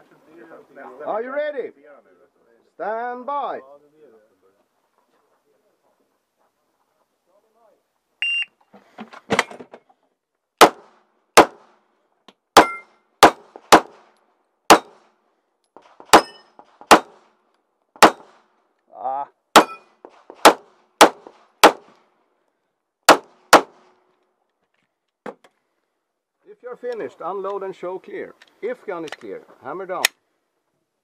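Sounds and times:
shot timer beep: 8.2s - 8.5s
pistol shots with echo: 10.6s - 11.7s, 12.6s - 14.0s, 14.7s - 15.0s, 16.1s - 17.2s, 18.0s - 18.4s, 19.6s - 19.8s, 20.4s - 21.9s, 23.1s - 23.8s.

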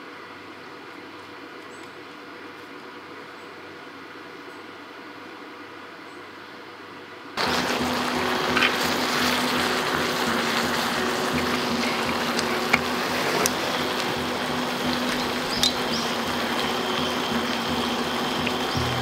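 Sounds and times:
camping stove burner hissing: 7.4s - 19.0s.

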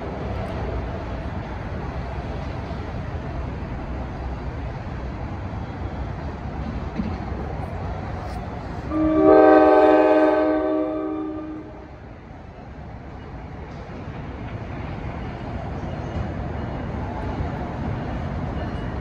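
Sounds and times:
low train rumble: 0.0s - 19.0s
train horn blast: 8.9s - 12.0s.

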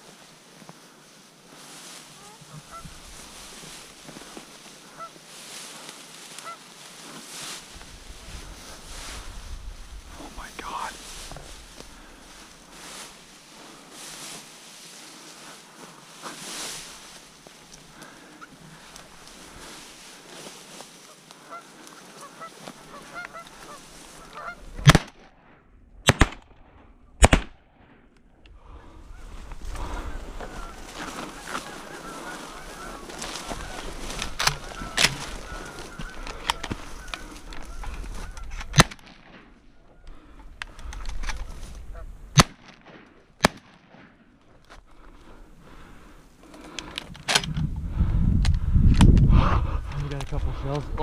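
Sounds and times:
geese honking: 1.7s - 9.2s, 11.2s - 24.9s, 28.7s - 38.8s
shotgun shots: 24.8s - 25.3s, 26.0s - 27.6s, 38.7s - 39.5s, 42.3s - 44.2s.

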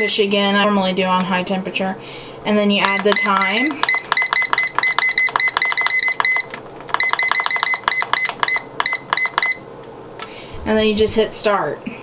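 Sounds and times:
pressure cooker button beeps: 2.8s - 9.6s.

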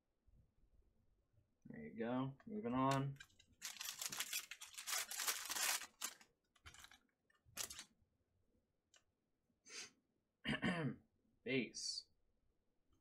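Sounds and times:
cards rustling: 2.8s - 7.0s, 7.6s - 7.9s
foil pack tearing: 3.6s - 7.0s, 7.6s - 7.8s.

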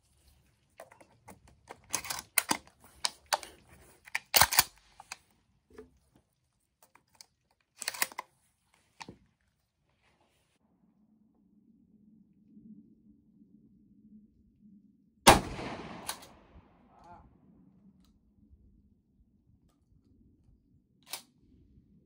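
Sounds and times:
shotgun shells loading clicks: 0.8s - 5.2s, 6.8s - 8.3s.

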